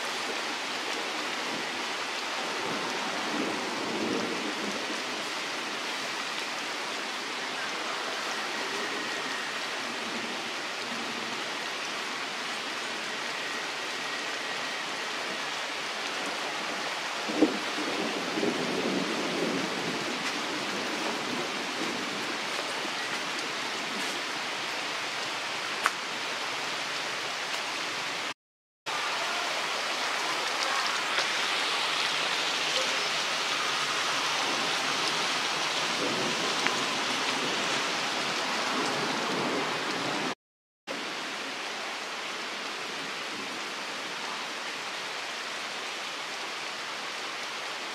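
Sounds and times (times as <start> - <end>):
steady outdoor hiss: 0.0 - 28.3, 28.9 - 40.3.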